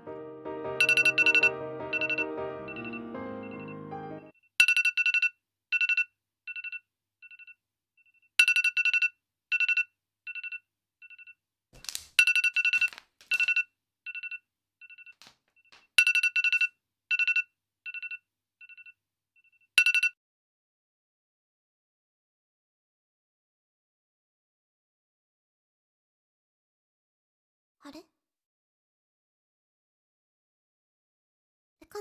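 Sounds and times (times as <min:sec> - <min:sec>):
electronic beeping: 0:00.8 - 0:03.8.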